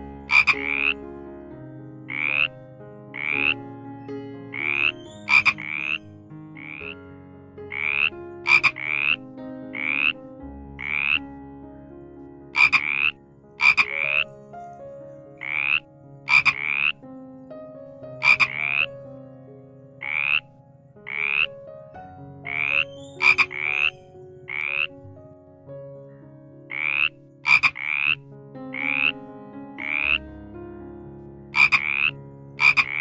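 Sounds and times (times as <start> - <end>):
frogs calling: 0.0 - 1.1, 1.9 - 7.0, 7.7 - 10.2, 10.8 - 11.3, 12.5 - 17.1, 18.2 - 19.1, 19.8 - 21.6, 22.4 - 25.2, 26.7 - 29.2, 29.8 - 30.3, 31.5 - 33.0
high clicking frog calls: 0.2 - 1.0, 2.1 - 2.5, 3.2 - 3.7, 4.5 - 7.0, 7.7 - 9.2, 9.8 - 10.2, 10.8 - 11.2, 12.6 - 14.3, 15.4 - 17.0, 18.2 - 18.9, 20.0 - 21.5, 22.5 - 25.0, 26.7 - 29.1, 29.8 - 30.2, 31.6 - 33.0.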